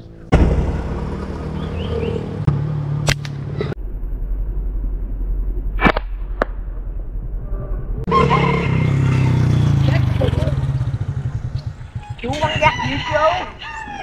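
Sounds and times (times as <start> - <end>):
steady low hum: 0.0 - 8.1
slingshot rubber band cracks: 3.0 - 3.4.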